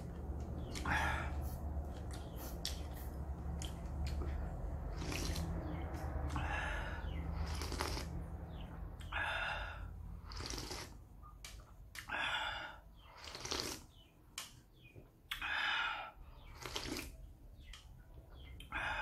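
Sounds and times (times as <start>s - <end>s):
slurping and chewing noodles: 0.0s - 9.1s, 10.2s - 11.2s, 13.0s - 14.1s, 16.4s - 17.7s
low hum: 0.0s - 10.4s.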